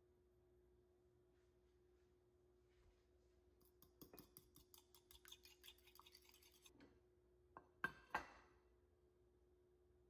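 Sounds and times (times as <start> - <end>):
fork beating egg in bowl: 3.6 - 6.8.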